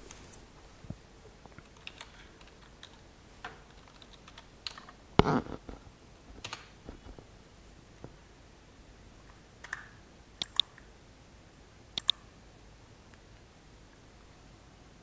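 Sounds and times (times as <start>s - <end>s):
keyboard keystroke clicks: 9.6s - 10.8s, 12.0s - 12.2s.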